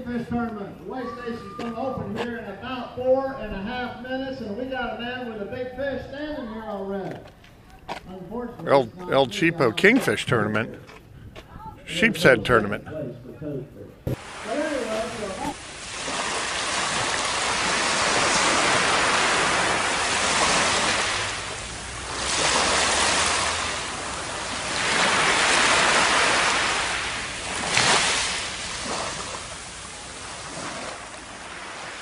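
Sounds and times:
surf washing up beach: 14.1 - 32.0.

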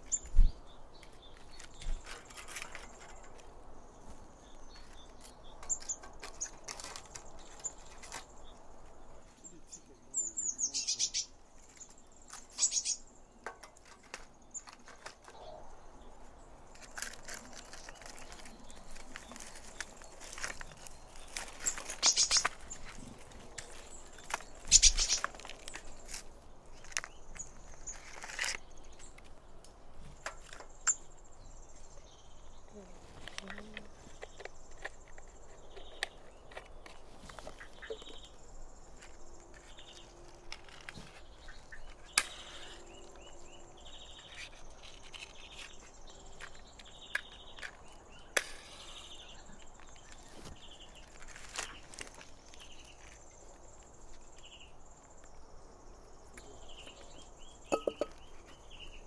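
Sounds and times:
insect chirping calls: 24.0 - 26.2.

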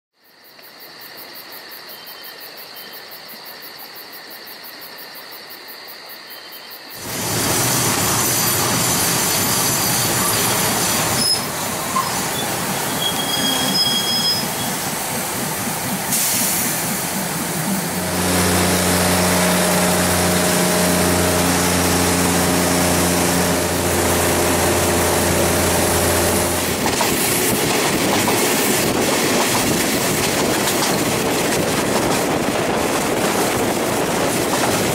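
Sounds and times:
train wheels rumbling on rails: 7.0 - 34.9
low engine hum: 17.2 - 27.5.

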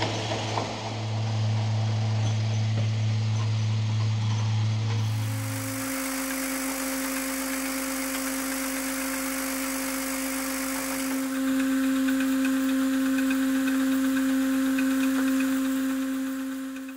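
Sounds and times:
machine humming: 5.0 - 16.9.

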